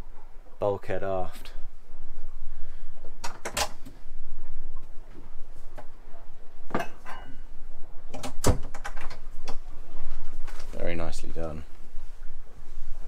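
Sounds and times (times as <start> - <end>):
steady low hum: 0.0 - 13.0
wooden door clicks and knocks: 8.1 - 9.2.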